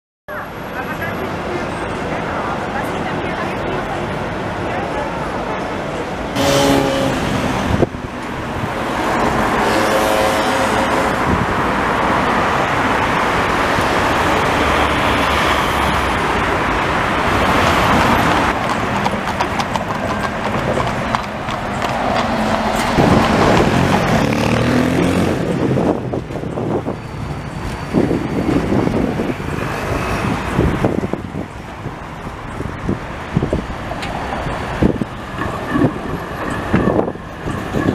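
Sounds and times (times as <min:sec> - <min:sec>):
cars passing: 0:00.3 - 0:37.9
horse hooves clip-clopping on road: 0:17.2 - 0:26.8, 0:32.2 - 0:37.9.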